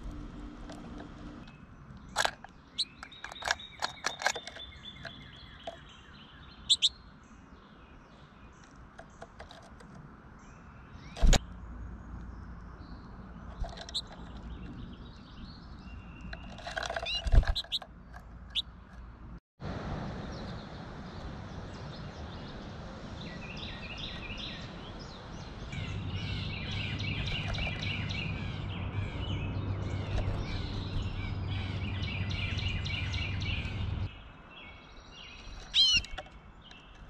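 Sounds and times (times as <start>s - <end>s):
goldfinches chirping and twittering: 2.6s - 8.8s, 12.2s - 17.8s, 21.4s - 37.0s.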